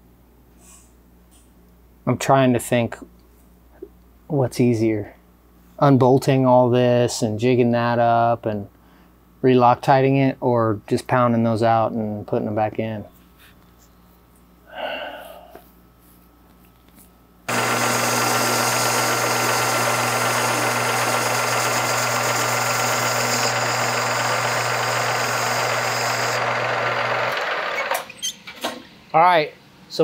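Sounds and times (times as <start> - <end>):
lathe cutting metal: 17.5 - 28.0
lathe motor hum: 17.5 - 28.0.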